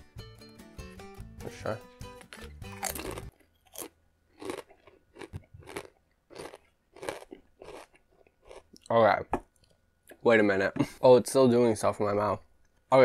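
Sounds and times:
background music: 0.0s - 3.4s
chip crunching while chewed: 2.2s - 9.0s.

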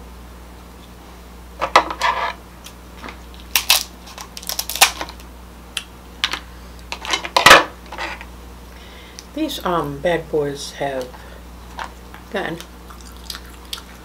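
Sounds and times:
crab shells cracking: 3.4s - 5.9s, 11.8s - 14.0s.

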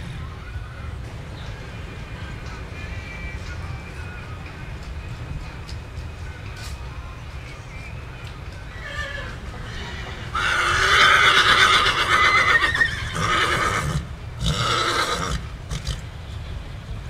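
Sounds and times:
horse whinnying: 8.8s - 16.0s.

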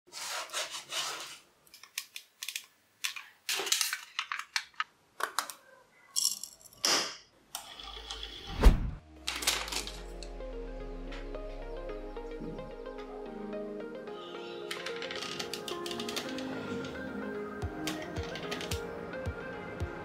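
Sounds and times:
loud thump: 8.5s - 9.0s
metal sheet crinkling: 9.2s - 10.1s.

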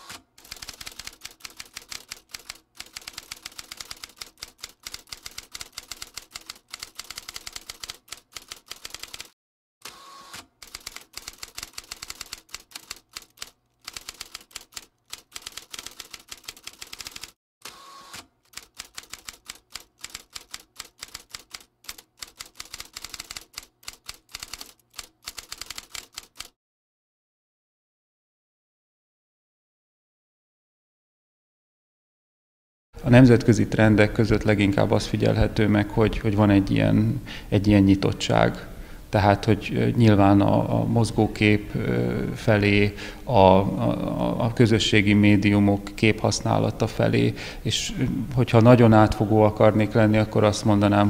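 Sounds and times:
typewriter keystrokes clacking: 0.4s - 9.3s, 10.6s - 17.4s, 18.5s - 26.5s.

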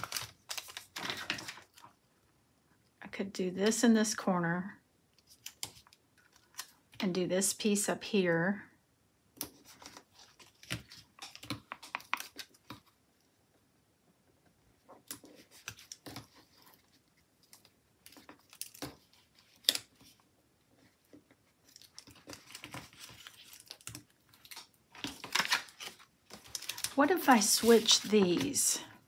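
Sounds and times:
paper rustling and crinkling: 0.0s - 2.0s, 9.5s - 12.9s, 15.0s - 20.2s, 20.8s - 29.0s.

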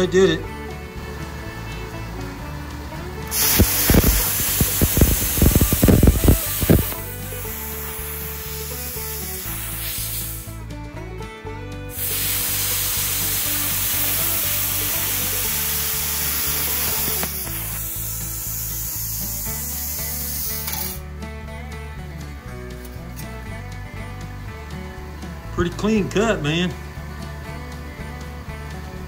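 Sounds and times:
background music: 0.0s - 29.0s
plasma cutter torch hissing: 3.3s - 10.6s, 11.9s - 21.0s.

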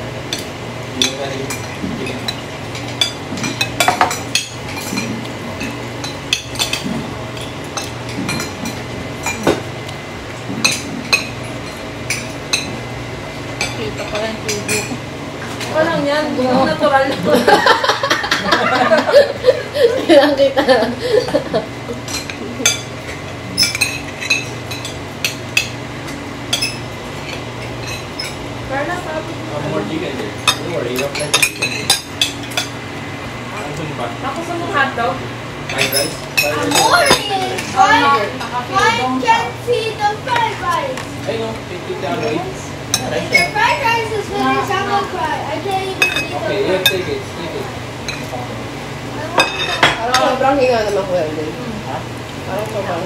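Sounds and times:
steady low hum: 0.0s - 53.0s
cutlery clinking on plates: 0.4s - 9.7s, 22.0s - 25.8s, 30.5s - 32.8s, 35.7s - 37.7s, 49.4s - 50.9s.

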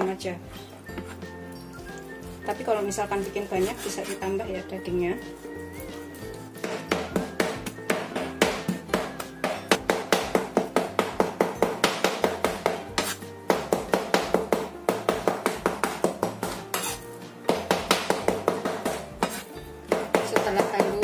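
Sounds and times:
cleaver chopping on wooden board: 6.6s - 21.0s.

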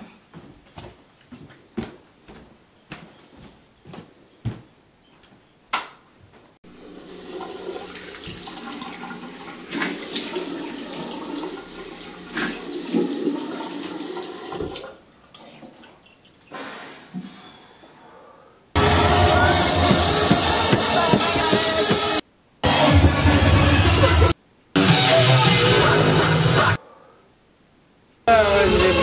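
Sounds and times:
hands washing splashing water: 6.8s - 16.0s
tap running into a sink: 14.5s - 14.9s
knocking: 18.8s - 22.2s.

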